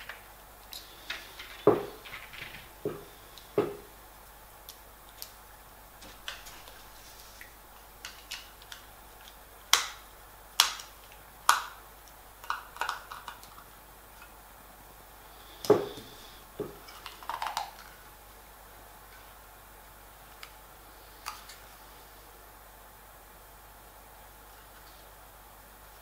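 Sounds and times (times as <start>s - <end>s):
dull knock: 1.7s - 2.0s, 2.8s - 3.9s.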